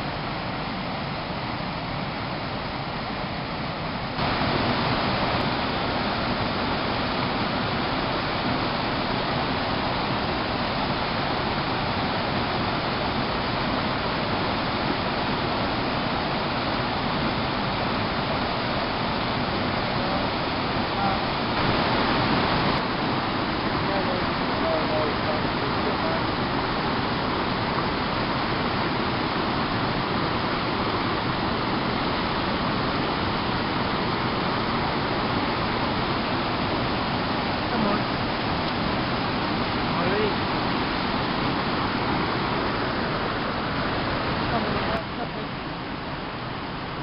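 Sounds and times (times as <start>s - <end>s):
waterfall and rapids rushing: 0.0s - 47.0s.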